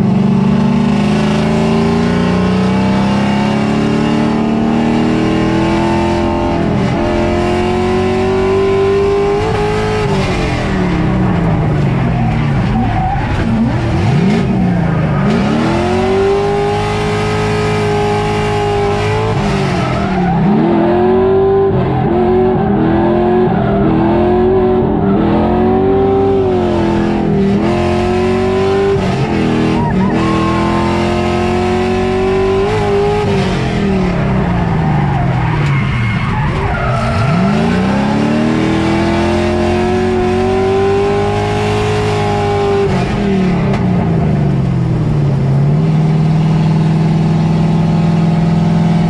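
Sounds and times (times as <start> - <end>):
car engine revving hard: 0.0 - 49.0
tyre squeal: 29.2 - 31.4, 34.4 - 38.4.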